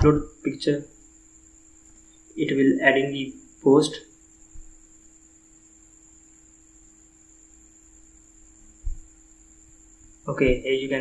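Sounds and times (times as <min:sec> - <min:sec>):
electrical hum with high whine: 0:00.0 - 0:11.0
faint hiss: 0:00.0 - 0:11.0
low thump: 0:08.8 - 0:09.2.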